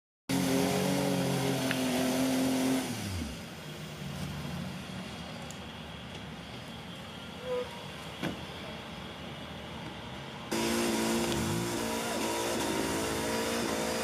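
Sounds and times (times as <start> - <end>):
off-road vehicle engine revving: 0.3 - 5.0, 10.5 - 14.0.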